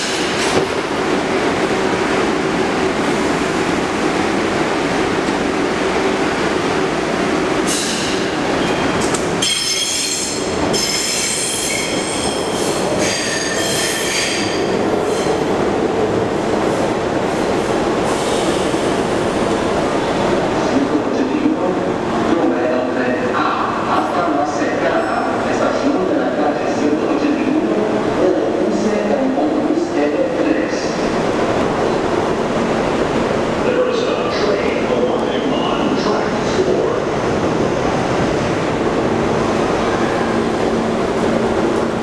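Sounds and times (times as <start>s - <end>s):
train wheels squealing: 7.7s - 15.4s.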